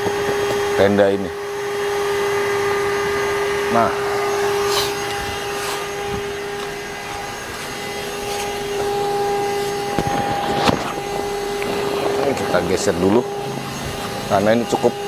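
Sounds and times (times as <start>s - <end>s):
electric air pump humming: 0.0s - 15.0s.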